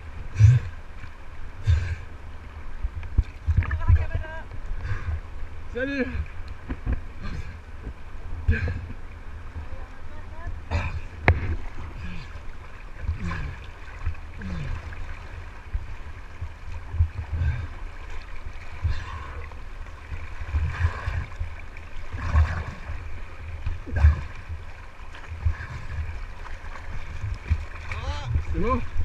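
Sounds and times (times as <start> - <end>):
river water rushing: 0.0 - 29.0
water slapping hull: 0.0 - 29.0.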